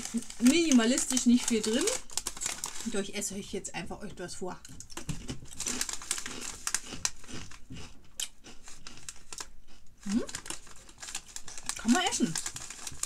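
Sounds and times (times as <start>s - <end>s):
plastic crisps packet crinkling: 0.0s - 3.3s, 4.6s - 13.0s.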